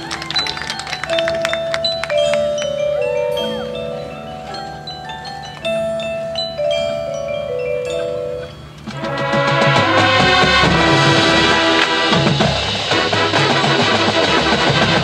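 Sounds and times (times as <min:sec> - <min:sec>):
mallet percussion playing soft melody: 0:00.0 - 0:09.0.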